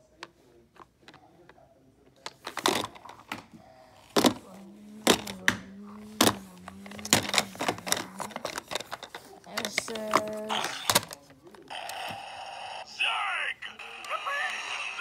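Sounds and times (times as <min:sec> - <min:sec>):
handling ticks and knocks: 0:04.1 - 0:11.4.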